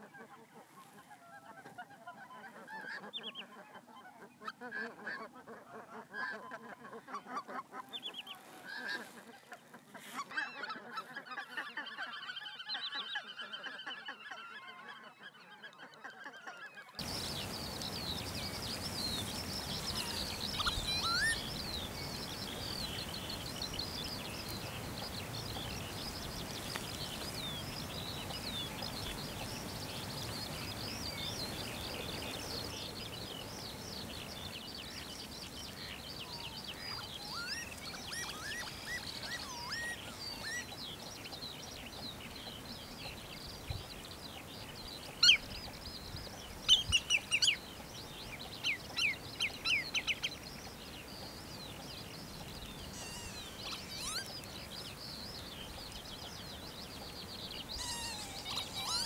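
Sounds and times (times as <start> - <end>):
wild birds chirping and twittering: 0.0 - 59.0
sharp bird chirps: 17.0 - 21.6, 53.0 - 54.3.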